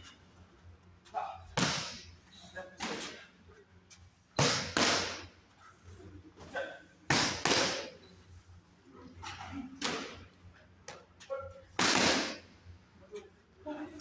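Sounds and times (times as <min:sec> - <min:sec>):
boxing gloves smacking mitts: 0:01.6 - 0:02.0, 0:04.4 - 0:05.3, 0:07.1 - 0:07.9, 0:11.8 - 0:12.4.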